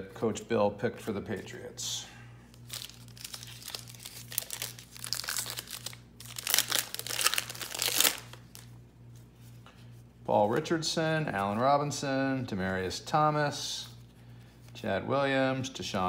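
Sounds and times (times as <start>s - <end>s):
foil wrapper crinkling: 2.6s - 8.7s.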